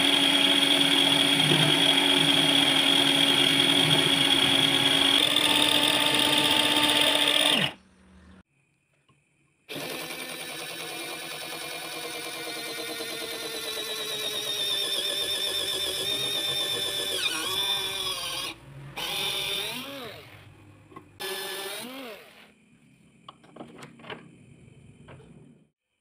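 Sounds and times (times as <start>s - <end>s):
electric drill whining: 0.0s - 7.8s, 9.7s - 20.3s, 21.2s - 22.5s.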